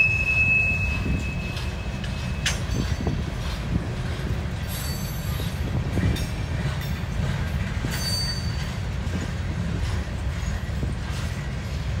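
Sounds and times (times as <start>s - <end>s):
high wheel squeal: 0.0s - 3.1s
freight train rumbling past: 0.0s - 12.0s
wheel clacks over rail joints: 0.0s - 12.0s.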